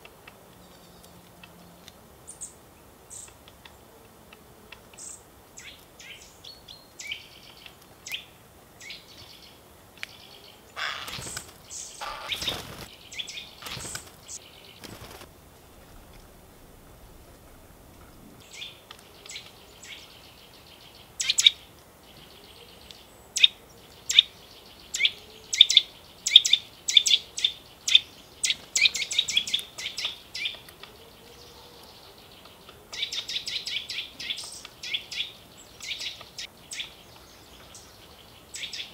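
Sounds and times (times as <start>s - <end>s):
songbirds chirping: 0.0s - 38.9s
harsh fuller bird calls: 5.0s - 38.9s
bird fast chatter: 10.8s - 16.0s.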